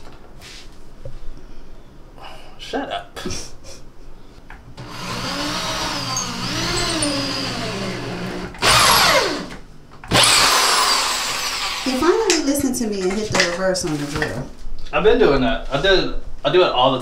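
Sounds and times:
electric drill drilling: 4.8s - 12.2s.

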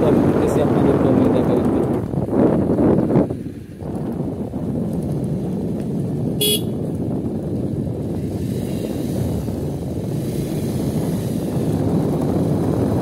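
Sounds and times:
vehicle rumbling on the move: 0.0s - 13.0s
vehicle horn beep: 6.4s - 6.8s.

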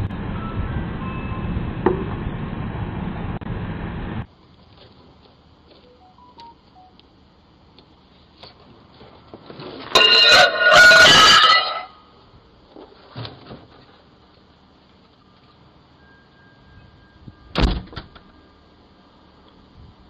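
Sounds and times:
glass shattering on concrete: 9.9s - 12.0s.

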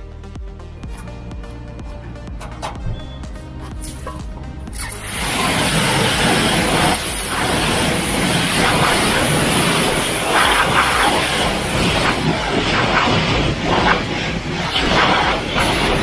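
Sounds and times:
high-pressure water spray hissing: 4.7s - 16.0s.

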